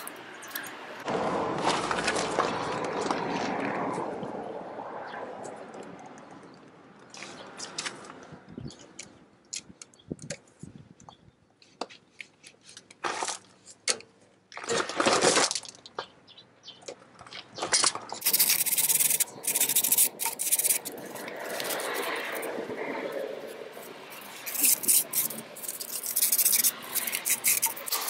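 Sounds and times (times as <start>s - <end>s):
metal rasping: 18.2s - 28.0s.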